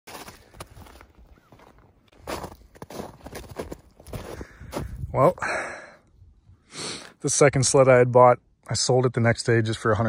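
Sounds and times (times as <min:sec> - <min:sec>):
footsteps crunching in snow: 0:00.1 - 0:05.1.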